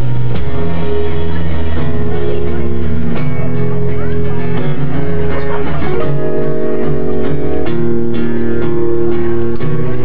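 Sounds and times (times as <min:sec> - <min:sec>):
acoustic guitars strumming chords: 0:00.0 - 0:10.0.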